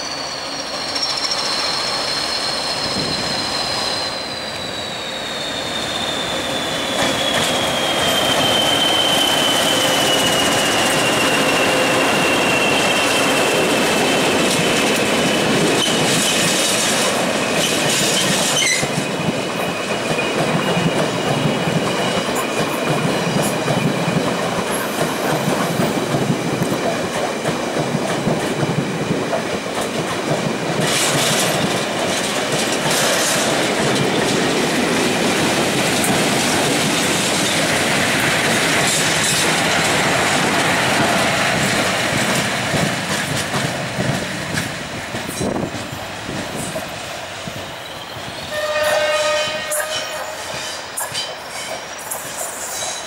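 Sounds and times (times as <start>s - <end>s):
diesel locomotive engine: 0.0s - 53.0s
train wheels clattering over rail joints: 6.8s - 47.0s
train horn: 48.5s - 50.8s.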